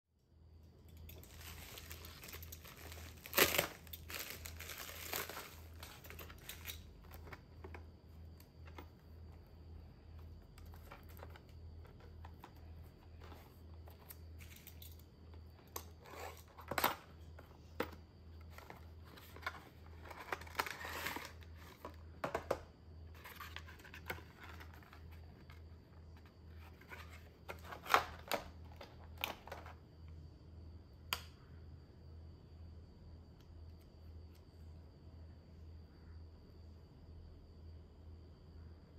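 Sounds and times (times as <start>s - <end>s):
plastic mailer bag crinkling: 1.0s - 7.4s
plastic bag tearing: 1.2s - 6.6s
plastic case handled: 15.8s - 29.8s.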